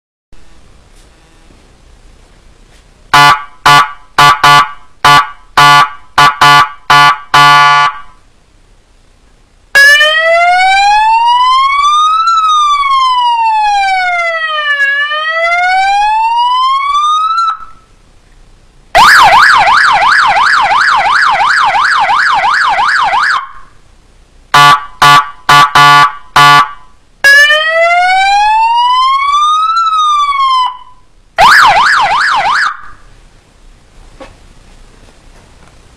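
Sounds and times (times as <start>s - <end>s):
electronic warning siren: 3.1s - 8.1s, 9.8s - 17.9s, 19.0s - 23.7s, 24.6s - 33.0s.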